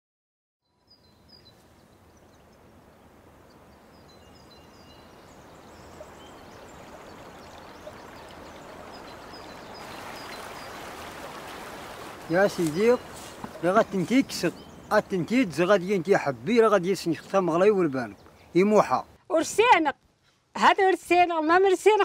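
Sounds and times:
birds chirping: 0:00.6 - 0:19.8
river rushing over stones: 0:05.7 - 0:16.3.

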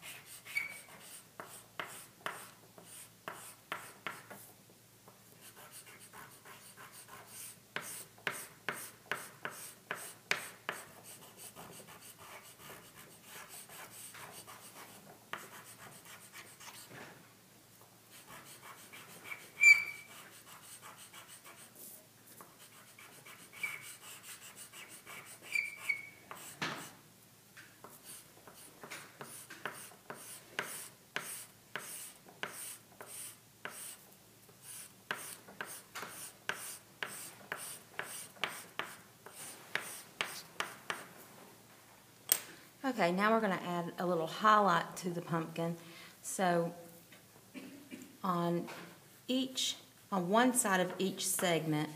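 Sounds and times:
chalk scraping on paper: 0:00.0 - 0:04.4, 0:05.4 - 0:16.9, 0:18.1 - 0:26.9, 0:27.9 - 0:34.0, 0:34.6 - 0:41.1
sharp high chalk squeak: 0:00.4 - 0:00.9, 0:19.3 - 0:20.2, 0:25.4 - 0:26.2.

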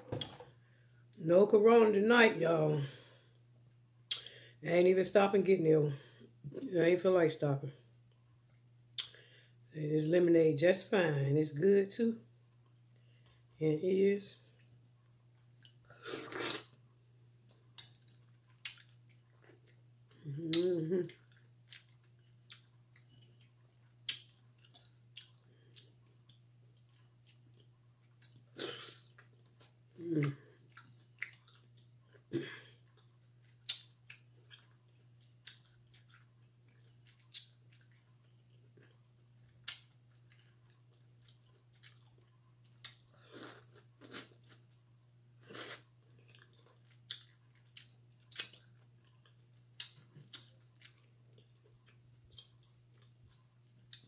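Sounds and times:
chewing and lip smacks: 0:08.1 - 0:09.2, 0:15.4 - 0:54.0.

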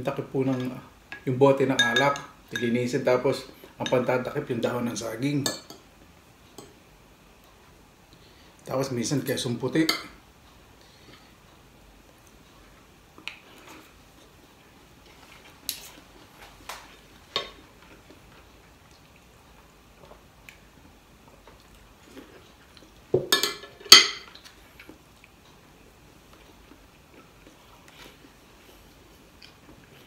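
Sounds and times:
cutlery clinking on a plate: 0:23.2 - 0:24.4.

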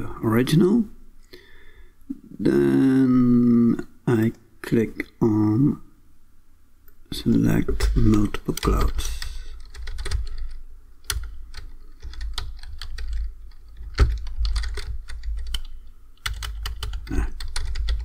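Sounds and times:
typing on computer keyboard: 0:07.8 - 0:18.0.

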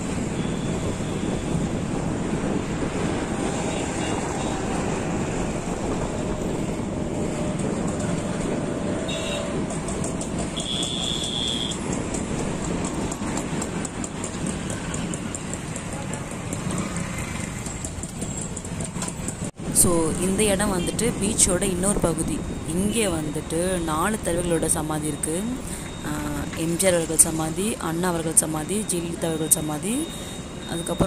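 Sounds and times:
city traffic road noise: 0:00.0 - 0:31.0
high-pitched beep: 0:22.7 - 0:31.0.

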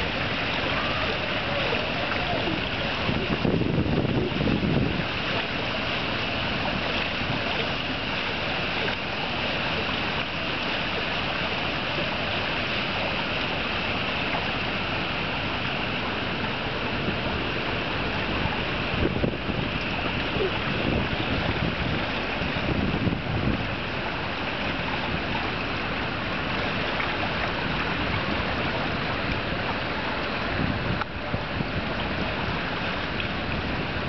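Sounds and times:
wind buffeting microphone: 0:00.0 - 0:07.7, 0:15.6 - 0:34.0
rushing wind: 0:00.0 - 0:08.6, 0:09.6 - 0:34.0
water noise: 0:00.0 - 0:34.0.

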